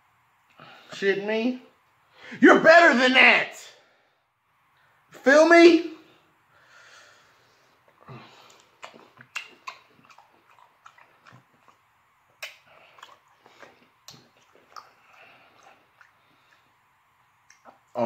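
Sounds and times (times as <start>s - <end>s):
man chewing and lip smacking: 7.8s - 18.0s.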